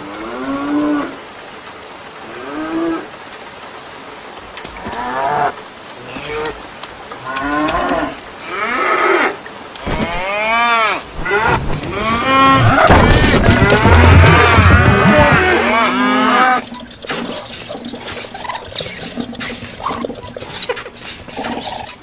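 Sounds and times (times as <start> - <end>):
rain hissing: 0.0 - 22.0
cows mooing: 7.2 - 22.0.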